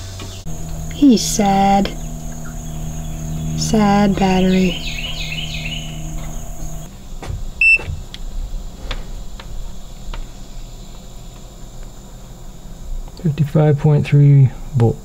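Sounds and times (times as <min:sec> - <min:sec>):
birds chirping: 0:00.3 - 0:06.9
low hum: 0:00.4 - 0:06.9.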